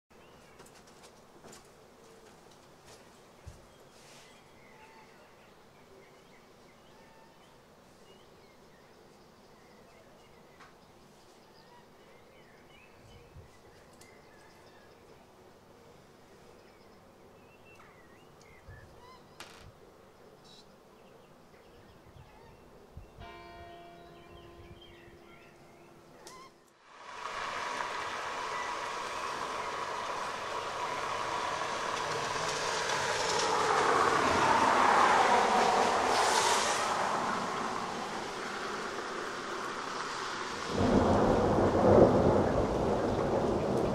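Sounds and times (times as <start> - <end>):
faint outdoor hiss: 0.1 - 43.9
faint bird chirps: 3.6 - 15.2, 15.8 - 19.4, 20.2 - 23.2
heavy rain hiss: 26.8 - 43.9.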